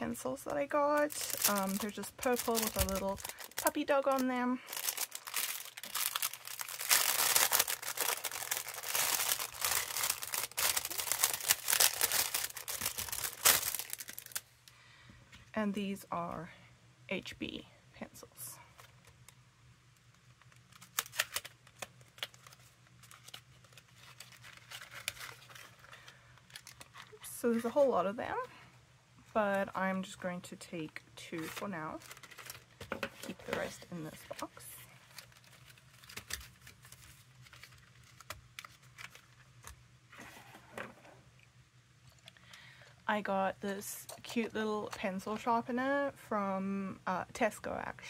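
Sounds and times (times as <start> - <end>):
packaging rustling and scraping: 0.8 - 14.6, 20.5 - 27.9, 31.4 - 41.2.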